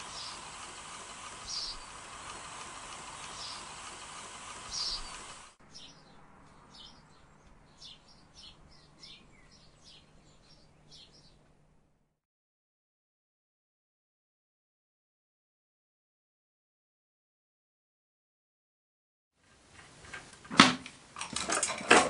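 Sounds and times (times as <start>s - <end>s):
steady noise: 0.0s - 5.6s
birds chirping: 0.0s - 11.6s.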